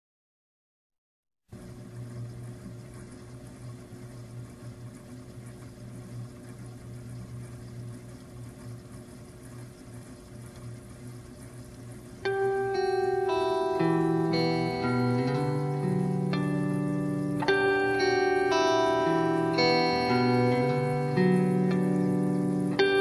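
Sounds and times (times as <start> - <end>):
noisy drone with low tone: 9.5 - 23.0
plucked guitar notes: 12.2 - 23.0.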